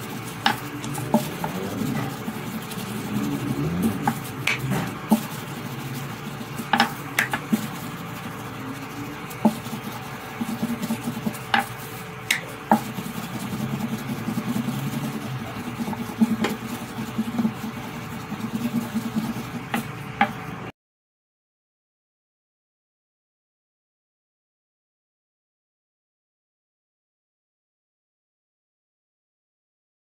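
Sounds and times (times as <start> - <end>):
rolling pin rumble: 0.4 - 11.7
rolling pin knocking on stone: 6.7 - 7.6.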